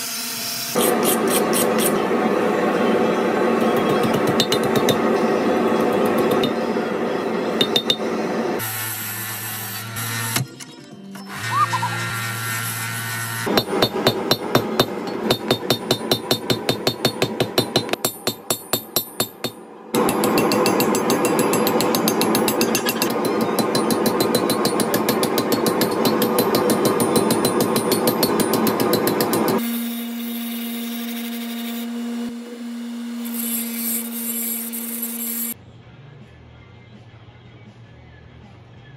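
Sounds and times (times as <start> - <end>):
hammer striking metal on anvil: 3.6 - 5.2, 5.8 - 6.8, 7.5 - 8.2, 13.5 - 29.6
power grinder humming: 11.3 - 13.6.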